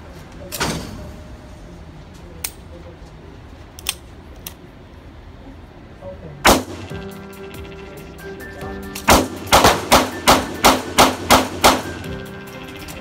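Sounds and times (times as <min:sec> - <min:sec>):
handgun shots echoing: 0:06.5 - 0:07.1, 0:09.0 - 0:12.2
background music: 0:06.5 - 0:13.0.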